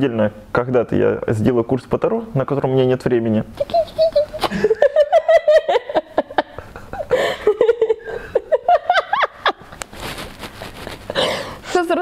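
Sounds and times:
woman laughing: 0:03.6 - 0:09.8.

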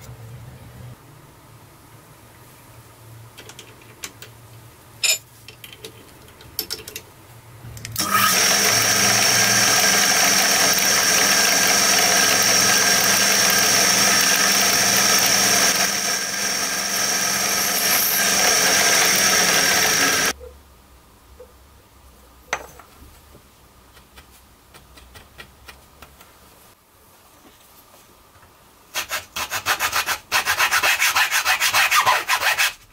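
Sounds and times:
drill bit drilling through disc: 0:08.0 - 0:20.3
drill press motor running: 0:08.0 - 0:20.3.

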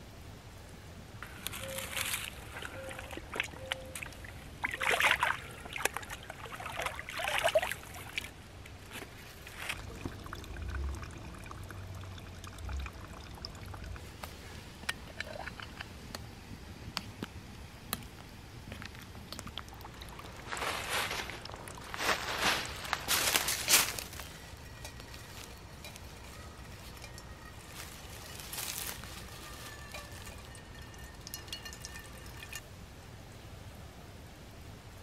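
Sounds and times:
water gurgling and sloshing: 0:01.7 - 0:14.1, 0:24.1 - 0:32.6.

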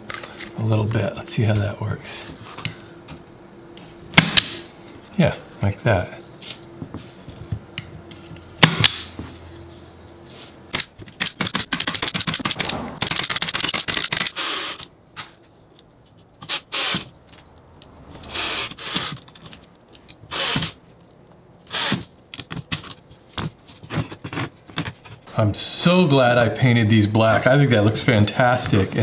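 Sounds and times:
cordless driver driving screws: 0:18.2 - 0:19.3.

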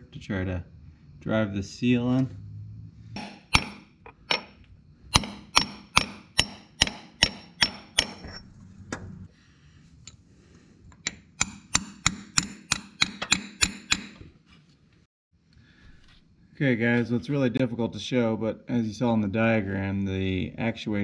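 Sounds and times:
hammer tapping on metal socket: 0:11.0 - 0:14.2.

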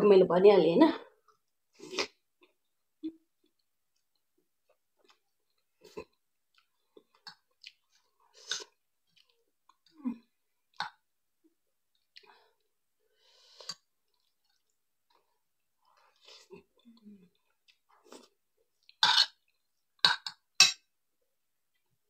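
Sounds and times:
person chewing: 0:03.4 - 0:10.0, 0:11.9 - 0:12.7, 0:13.4 - 0:20.4.

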